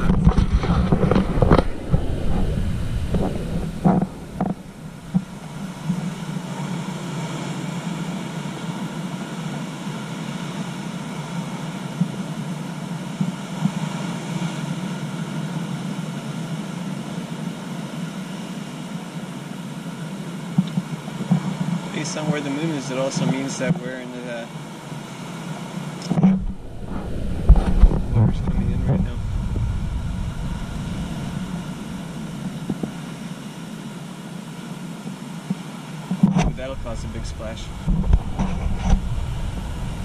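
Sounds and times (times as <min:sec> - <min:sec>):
wind buffeting microphone: 0:00.0 - 0:08.3, 0:26.0 - 0:34.2, 0:36.1 - 0:40.0
ocean surf on rocky shore: 0:00.0 - 0:40.0.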